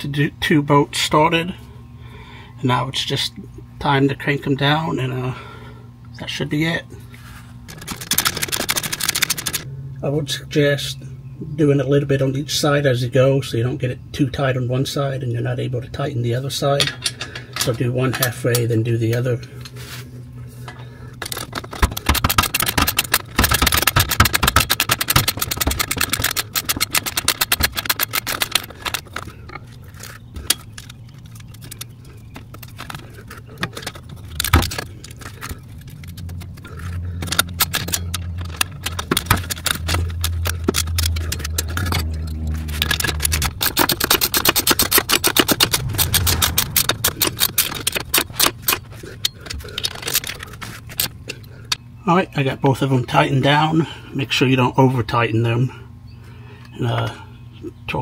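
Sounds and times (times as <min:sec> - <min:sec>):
low steady hum: 0:00.0 - 0:58.0
socket ratchet clicking: 0:07.7 - 0:09.7, 0:21.2 - 0:51.4.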